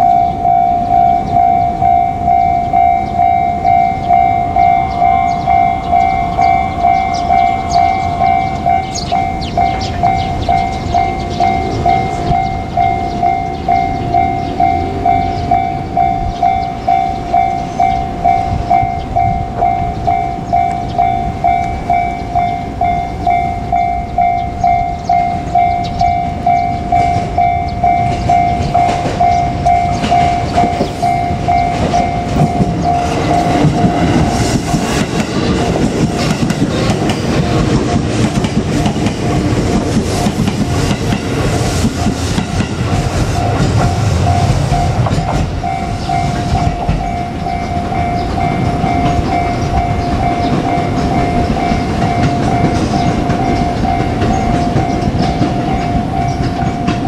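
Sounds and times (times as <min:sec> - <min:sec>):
level crossing bell ringing: 0:00.0 - 0:35.8, 0:42.0 - 0:57.0
train rumbling past: 0:00.0 - 0:57.0
wheel clatter over rail joints: 0:25.1 - 0:57.0.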